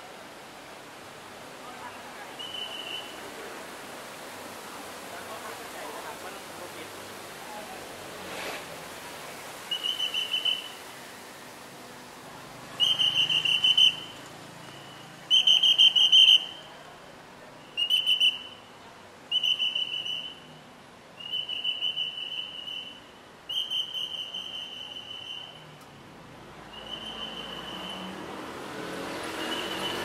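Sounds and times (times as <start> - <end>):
whistle trilling blasts: 9.7 - 10.8, 12.8 - 16.7, 17.7 - 18.7, 19.3 - 20.5, 21.2 - 25.8, 26.7 - 28.2.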